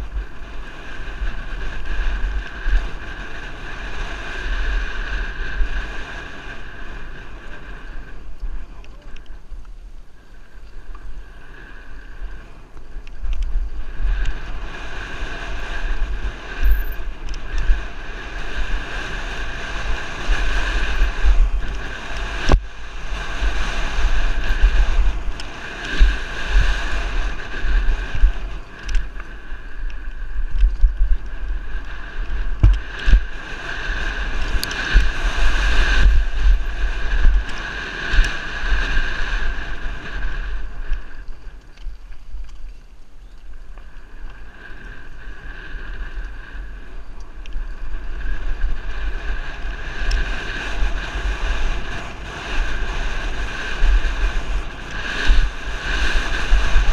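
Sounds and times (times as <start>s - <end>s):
high whir of bike: 0.0s - 56.9s
wind rumbling on microphone: 0.0s - 56.9s
bike knocks and rattles: 32.5s - 33.2s.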